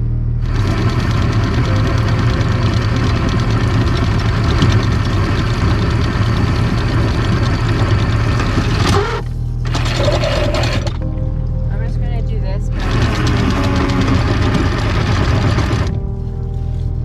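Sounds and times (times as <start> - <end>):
diesel engine idling: 0.0 - 16.8
anchor chain clattering: 1.3 - 11.0.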